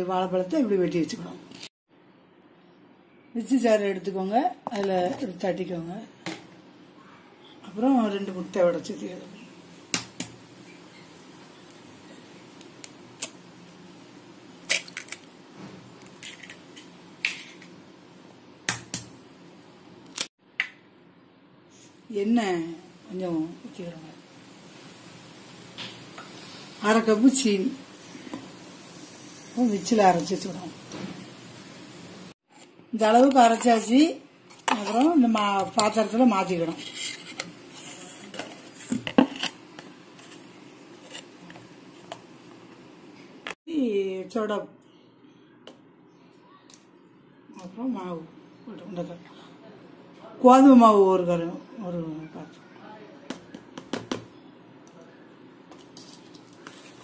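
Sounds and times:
spoon scraping steel jar: 0:36.6 - 0:39.6.

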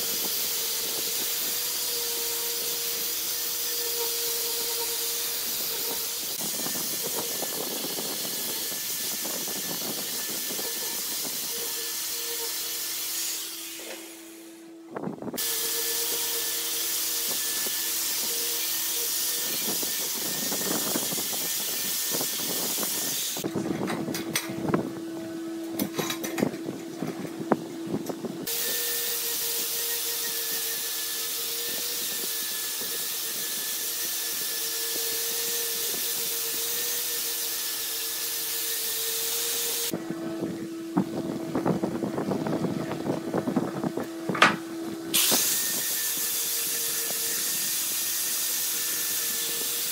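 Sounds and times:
buffing wheel hiss on steel: 0:00.0 - 0:14.5, 0:45.2 - 0:49.9
angle grinder motor whine: 0:00.0 - 0:49.9.

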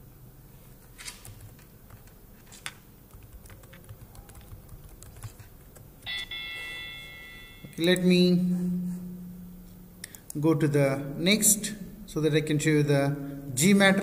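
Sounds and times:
high electronic tone: 0:06.0 - 0:09.5.

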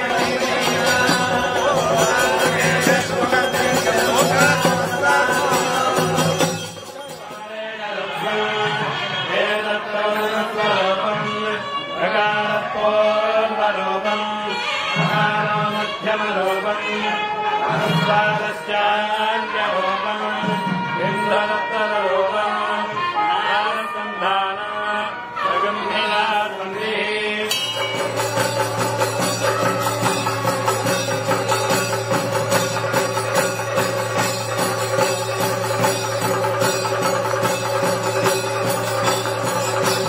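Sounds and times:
quick dense percussion: 0:00.0 - 0:07.6, 0:27.5 - 0:40.0
chanted singing: 0:00.0 - 0:40.0.

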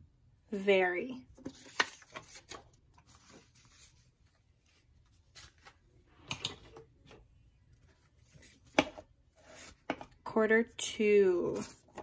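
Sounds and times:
paper cards rustling: 0:01.4 - 0:06.4, 0:07.2 - 0:10.1.

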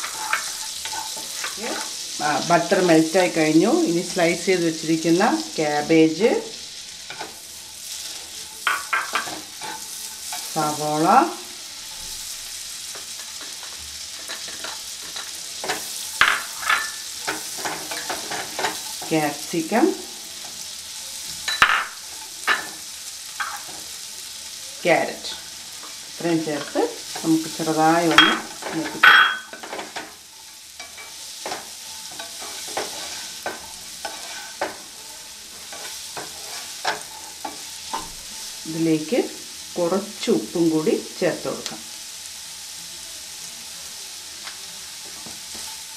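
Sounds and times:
spatula scraping pan: 0:00.0 - 0:03.4, 0:07.0 - 0:20.7, 0:25.2 - 0:38.6
vegetables sizzling in butter: 0:00.0 - 0:45.9.

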